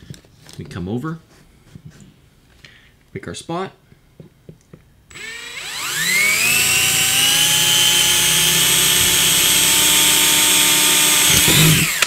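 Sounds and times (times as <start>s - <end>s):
electric drill boring through plastic: 5.1s - 12.0s.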